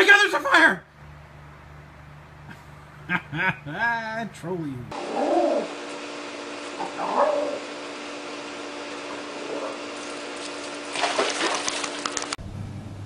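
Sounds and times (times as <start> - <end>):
steady hum: 1.1 - 13.0
cat hissing: 6.8 - 7.6
small dogs yipping and barking: 6.8 - 7.8
scuffling clicks: 10.0 - 12.4.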